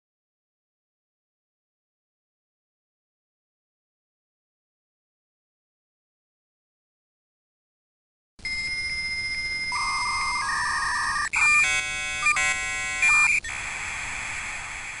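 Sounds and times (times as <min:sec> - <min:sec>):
cluster of chiming tones: 0:08.4 - 0:13.4
warbling two-tone signalling: 0:08.5 - 0:13.5
hiss of data noise: 0:13.0 - 0:15.0.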